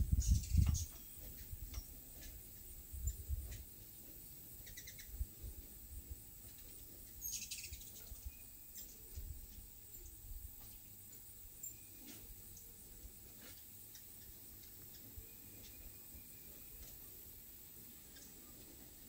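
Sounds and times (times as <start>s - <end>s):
wind rumble on microphone: 0.0s - 3.8s, 4.9s - 6.7s, 7.7s - 10.6s
hummingbirds chirping: 0.0s - 19.0s.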